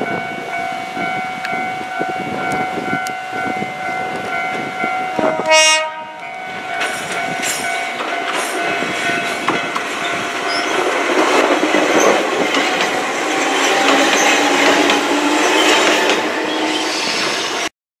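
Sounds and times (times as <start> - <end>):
train wheels rumbling on rails: 0.0 - 17.7.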